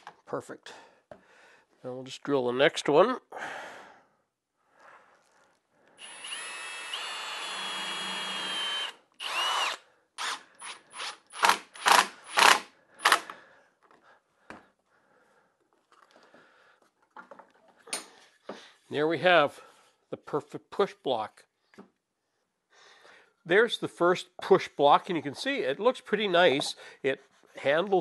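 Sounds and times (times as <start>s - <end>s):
cordless drill whining: 6.0s - 13.3s
cordless driver trigger bursts: 6.0s - 13.3s.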